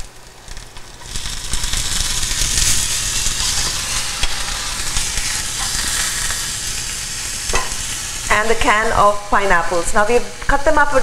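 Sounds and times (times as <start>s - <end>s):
hot oil sizzling in a skillet: 0.0s - 11.0s
spatula stirring: 0.8s - 6.8s.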